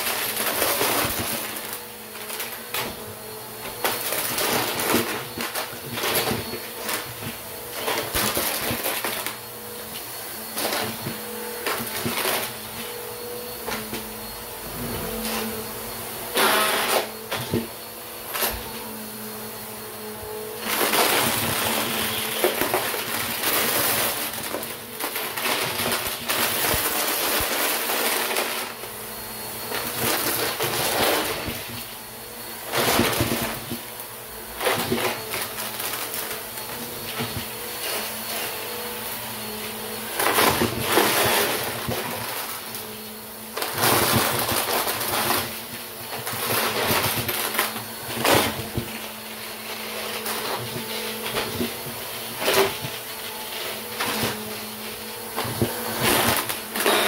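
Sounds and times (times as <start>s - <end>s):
vacuum cleaner motor humming: 0.0s - 57.0s
plastic caps rattling through vacuum: 43.5s - 57.0s.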